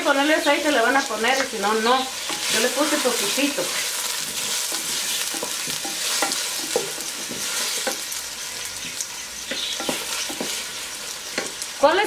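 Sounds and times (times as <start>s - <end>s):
food sizzling in hot oil: 0.0s - 12.0s
wooden spoon knocking clay pot: 9.5s - 10.6s.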